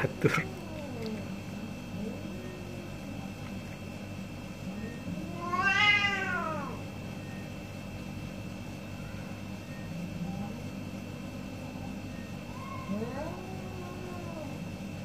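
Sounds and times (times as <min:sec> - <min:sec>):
cat yowling angrily: 0:05.2 - 0:06.8, 0:12.5 - 0:14.7.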